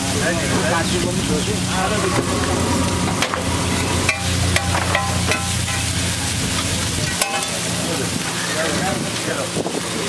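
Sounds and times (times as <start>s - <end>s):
frying hiss: 0.0s - 10.0s
low steady hum: 0.4s - 7.8s
metal spatula clinking on griddle: 3.9s - 6.1s, 7.0s - 7.7s.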